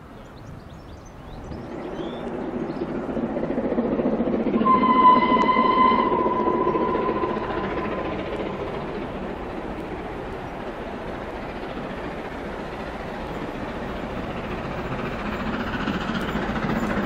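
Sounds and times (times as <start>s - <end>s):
steam train rumble: 0.0s - 17.0s
locomotive whistle: 4.4s - 9.8s.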